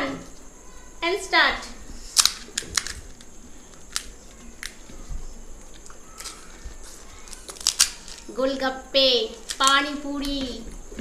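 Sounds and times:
crisp shells cracking and crunching: 7.2s - 8.3s.

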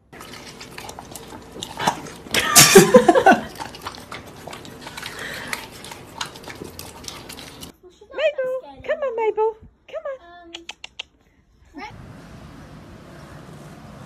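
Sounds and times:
dog vocalizing: 0.2s - 7.7s.

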